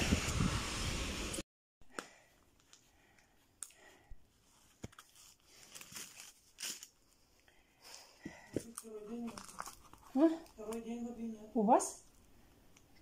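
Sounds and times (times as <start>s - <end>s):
plastic packaging crinkling: 4.6s - 7.2s, 8.6s - 11.0s.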